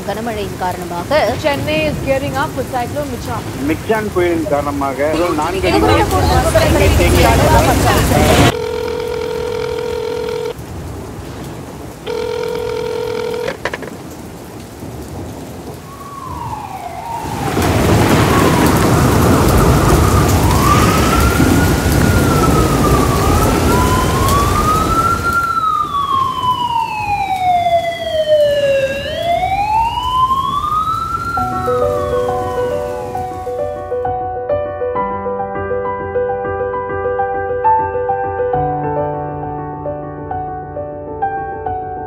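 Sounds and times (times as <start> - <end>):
pouring rain: 0.0 - 34.2
siren wailing: 5.2 - 10.6, 15.8 - 33.9.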